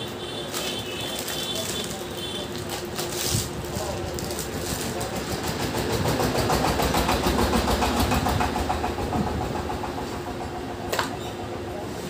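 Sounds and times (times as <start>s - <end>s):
engine running steadily: 4.0s - 11.8s.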